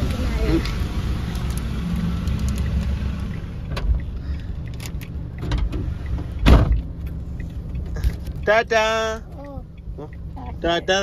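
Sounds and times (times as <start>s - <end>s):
car door handling clicks: 4.7s - 6.9s
car door closing thump: 6.4s - 6.8s.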